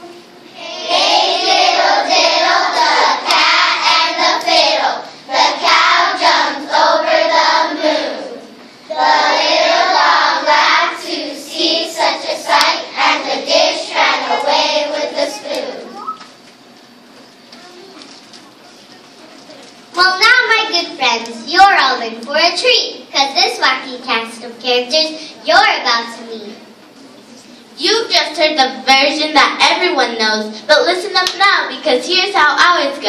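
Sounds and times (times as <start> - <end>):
children's chorus singing: 0.0 - 16.1.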